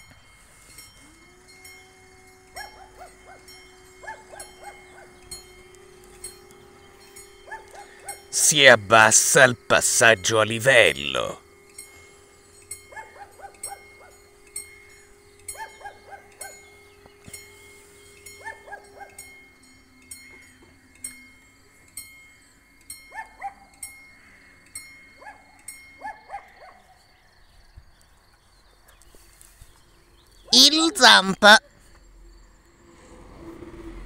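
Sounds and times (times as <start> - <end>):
level crossing warning bell: 0.0 - 26.0.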